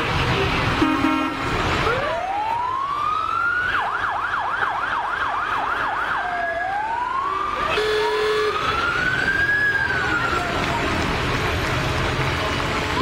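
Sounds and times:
horn blast: 0.8s - 1.6s.

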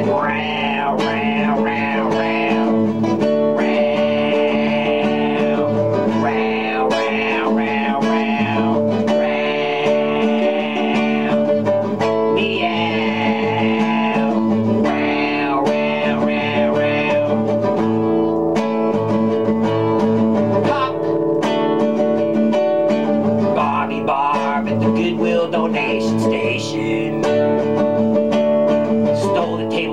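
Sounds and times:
man's wordless vocal sounds: 0.0s - 11.6s, 12.4s - 17.4s, 20.6s - 21.2s, 23.5s - 27.2s, 29.2s - 29.9s
acoustic guitar strummed: 0.0s - 29.9s.

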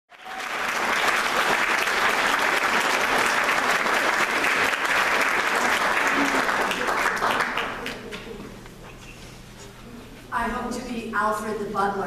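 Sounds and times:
crowd applauding: 0.1s - 8.4s.

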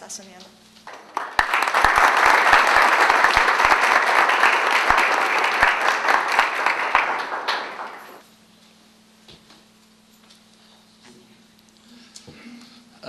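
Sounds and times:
audience applauding: 0.9s - 8.2s.

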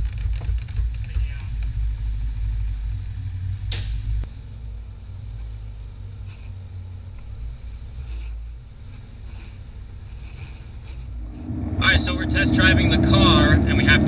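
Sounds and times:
car engine rumbling: 0.0s - 14.0s.

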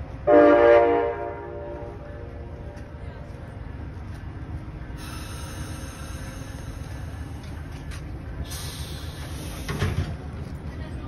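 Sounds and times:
train low rumble: 0.0s - 11.0s
air hissing: 5.0s - 10.3s.

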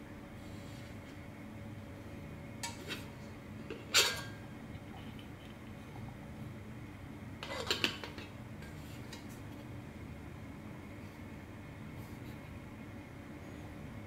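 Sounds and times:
metal pot and lid clinking: 3.8s - 4.4s.

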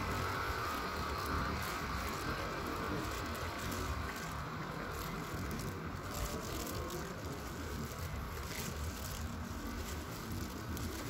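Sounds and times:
faint rustles: 0.0s - 11.0s.

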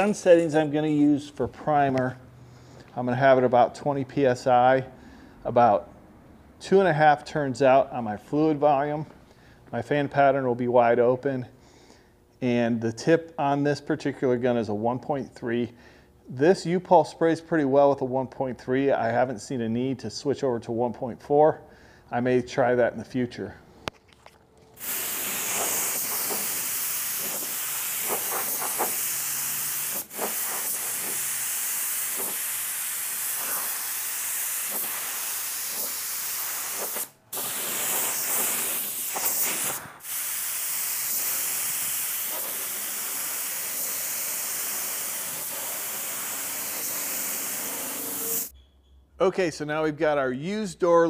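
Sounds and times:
spray gun air hissing: 24.8s - 48.5s.

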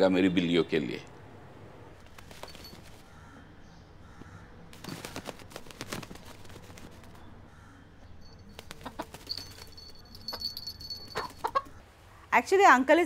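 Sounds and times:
rooster wings flapping: 2.0s - 3.0s, 4.7s - 7.2s, 8.5s - 11.7s.

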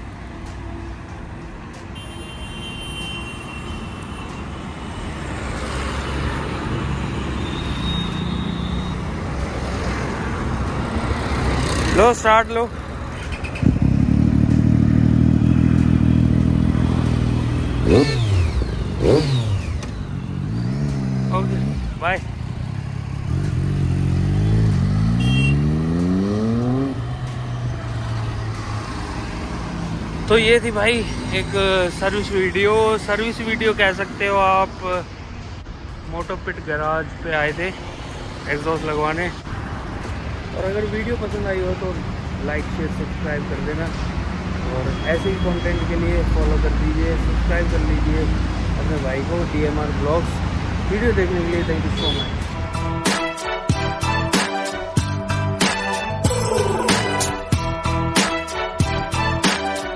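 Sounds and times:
highway traffic passing: 0.0s - 59.9s
motorcycle accelerating: 9.8s - 32.7s.

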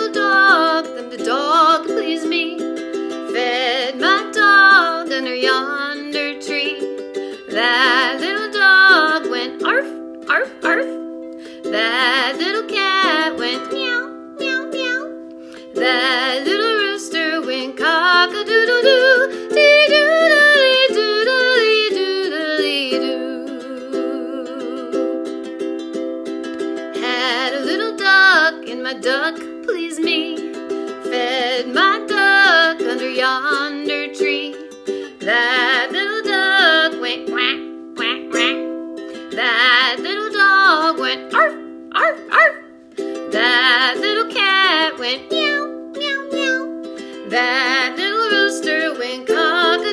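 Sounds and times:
woman singing: 0.0s - 25.5s, 26.6s - 49.9s
ukulele strumming: 0.0s - 49.9s.

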